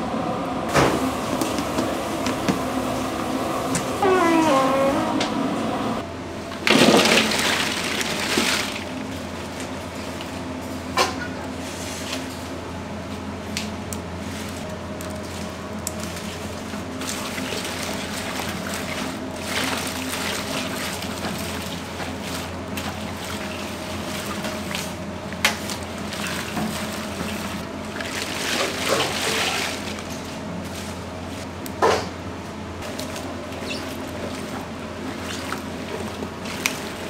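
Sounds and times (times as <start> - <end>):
steady low hum: 0.0 - 6.7
hands squishing wet vegetables: 13.6 - 31.4, 32.8 - 37.0.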